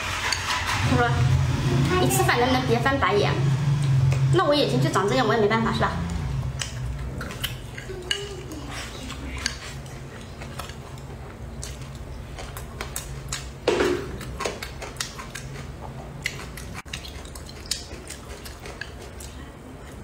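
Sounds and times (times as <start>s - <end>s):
chewing: 6.0s - 20.0s.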